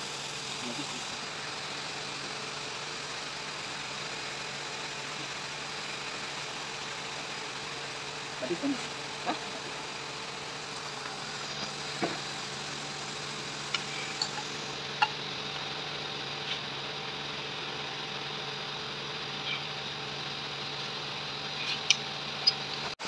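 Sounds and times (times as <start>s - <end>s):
machine hum: 0.0s - 23.0s.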